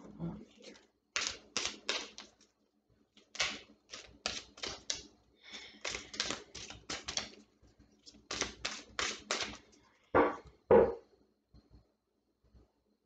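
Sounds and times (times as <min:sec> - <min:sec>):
cards being shuffled: 0:00.6 - 0:02.5, 0:03.2 - 0:05.1, 0:05.7 - 0:07.4, 0:08.0 - 0:09.6.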